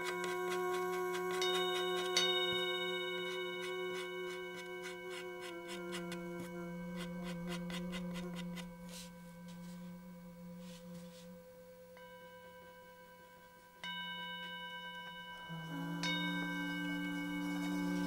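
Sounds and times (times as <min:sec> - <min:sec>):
ringing bell-like tones: 0:01.1 - 0:07.0, 0:08.5 - 0:18.0.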